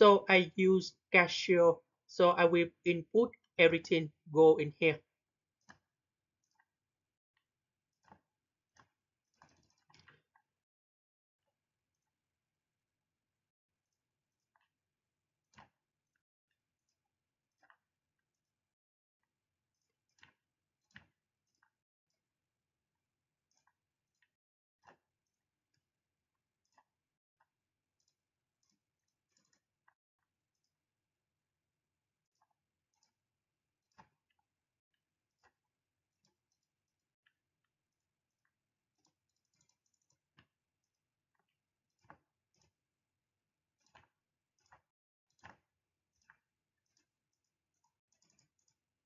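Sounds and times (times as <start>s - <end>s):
computer mouse clicks: 43.7s - 48.8s.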